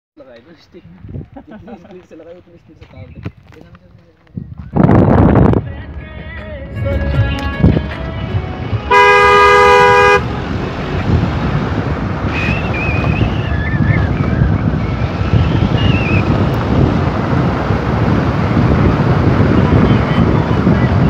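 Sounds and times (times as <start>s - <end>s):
road and wind rumble: 0.2s - 21.0s
two-tone vehicle horn blast: 8.9s - 10.4s.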